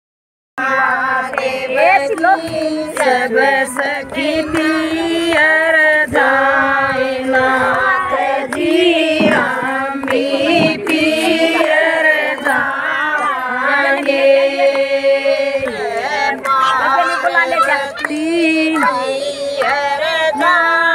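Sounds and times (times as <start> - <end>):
women singing devotional song: 0.6 - 20.9
hand claps: 1.2 - 6.0, 7.7 - 14.9, 15.6 - 20.7.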